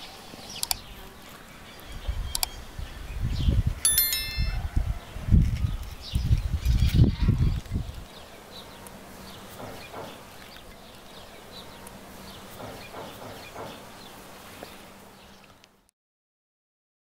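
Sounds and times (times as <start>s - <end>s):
small birds chirping: 0.0s - 3.6s.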